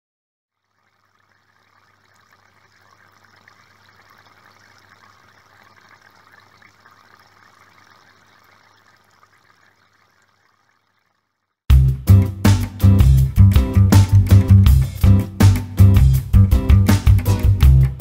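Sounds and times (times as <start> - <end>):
water trickling from filter: 0.5 - 11.6.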